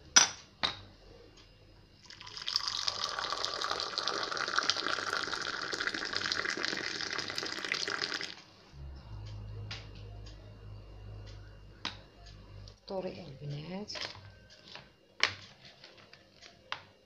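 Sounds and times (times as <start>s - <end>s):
tea pouring into a glass: 2.0s - 8.4s.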